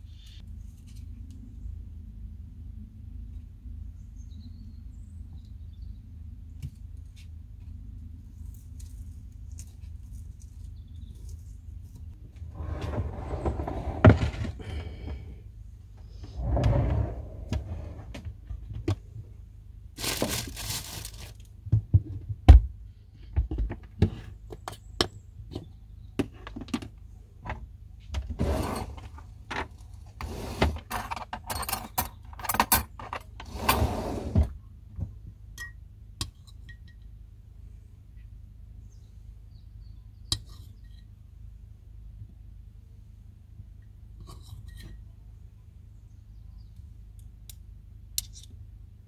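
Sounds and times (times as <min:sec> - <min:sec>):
rustling: 0:08.2 - 0:15.1, 0:20.0 - 0:21.5.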